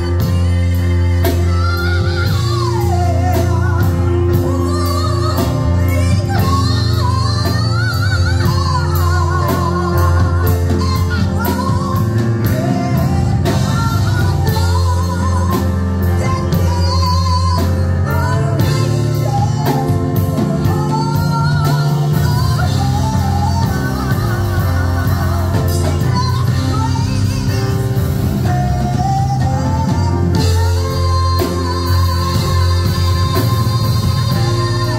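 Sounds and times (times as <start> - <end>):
instrumental accompaniment with beat: 0.0 - 34.9
woman singing with vibrato: 0.0 - 34.9.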